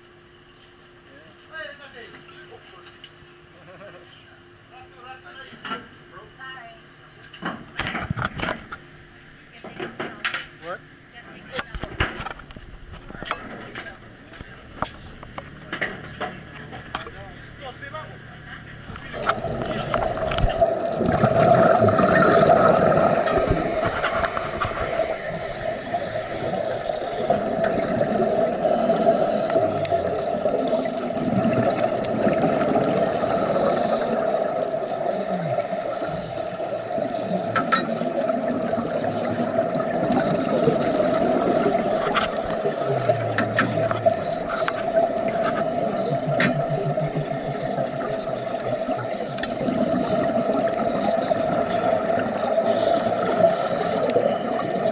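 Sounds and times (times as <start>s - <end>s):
muffled underwater hum: 10.8s - 54.9s
gurgling exhaled bubbles: 18.8s - 54.9s.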